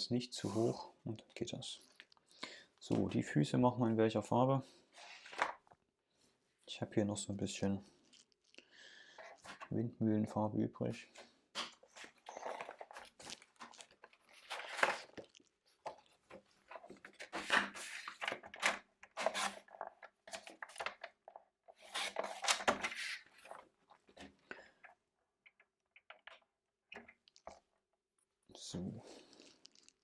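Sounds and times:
cardstock rustling and scraping: 0:11.8 - 0:23.7.

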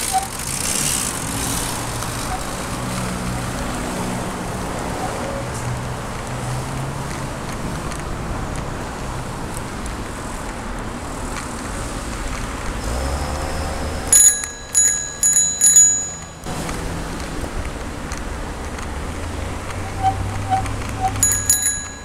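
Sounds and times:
bicycle riding noise: 0:00.0 - 0:22.0
bicycle bell ringing: 0:14.1 - 0:16.5, 0:20.0 - 0:22.0.

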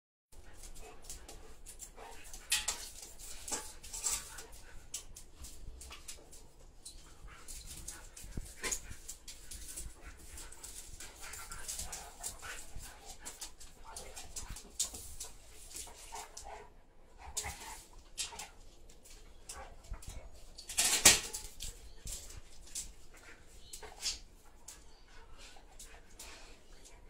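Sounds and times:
dogs whining softly: 0:21.3 - 0:27.0.

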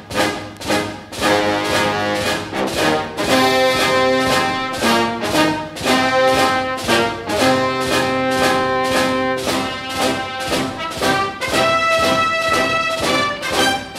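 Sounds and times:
held pitched notes: 0:00.0 - 0:13.9
steady beat: 0:00.0 - 0:13.9.

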